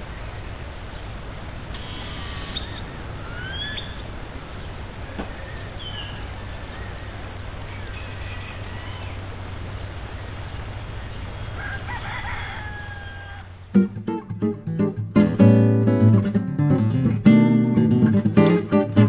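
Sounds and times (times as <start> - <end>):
background hiss and rumble: 0.0 - 19.0
rooster crowing: 11.5 - 13.6
acoustic guitar strumming: 13.7 - 19.0.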